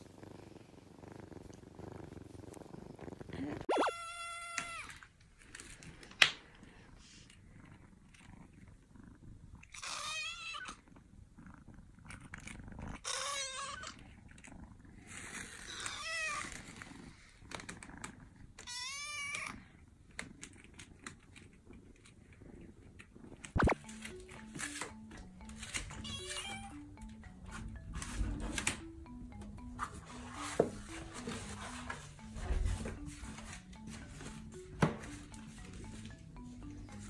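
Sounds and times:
kitten meowing: 3.7s - 4.9s.

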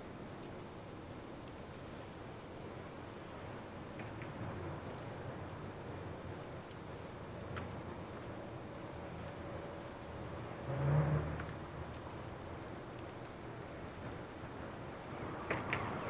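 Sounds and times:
low hiss: 0.0s - 16.0s.

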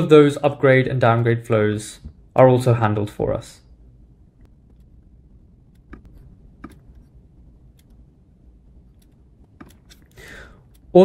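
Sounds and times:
computer mouse clicks: 5.7s - 7.1s, 7.7s - 8.0s, 8.9s - 10.9s.

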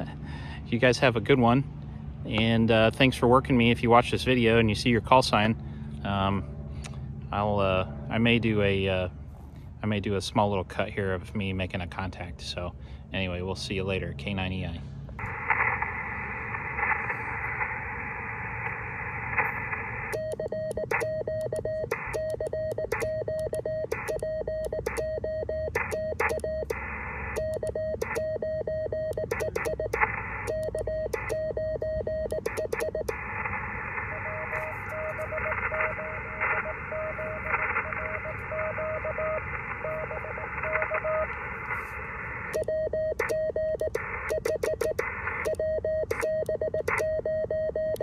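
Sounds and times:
radio receiver hiss: 15.2s - 20.3s, 32.4s - 42.6s, 43.2s - 46.3s
morse code tone: 20.1s - 33.3s, 34.0s - 41.3s, 42.6s - 48.0s.

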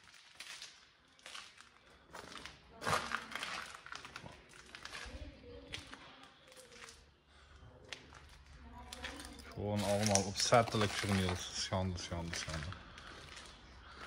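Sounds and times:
footsteps crunching on grit: 9.0s - 14.0s.

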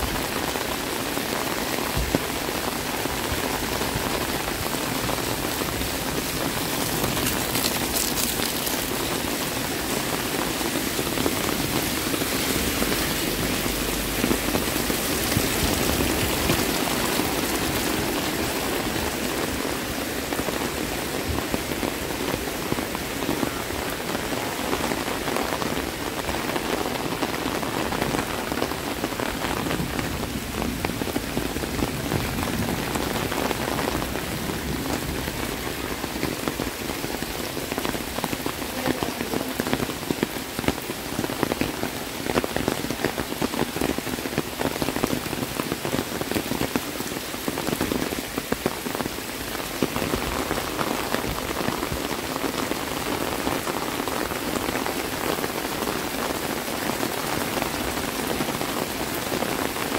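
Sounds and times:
heavy rain: 0.0s - 59.9s
raindrop ticks: 6.6s - 9.2s.

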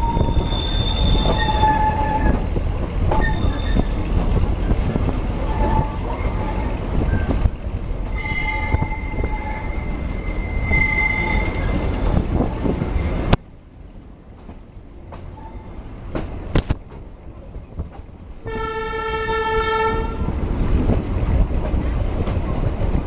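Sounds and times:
train wheels squealing: 0.0s - 2.4s, 3.1s - 4.1s, 8.1s - 12.3s, 12.9s - 13.4s
train carriage rumbling: 0.0s - 23.0s.

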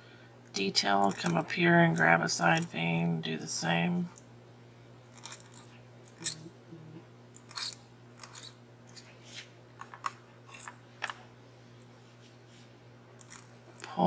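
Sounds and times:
faint steady hum: 0.0s - 14.0s
metal nib scratching on glass: 7.4s - 9.0s.

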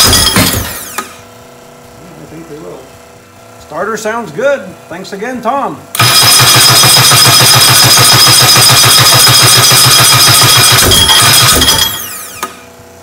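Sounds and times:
starter cranking engine: 6.0s - 12.6s
starter spinning down whine: 6.0s - 12.7s.

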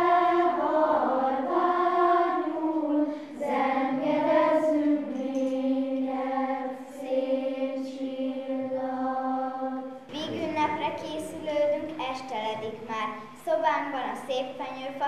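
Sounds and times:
children's choir singing: 0.0s - 11.8s.

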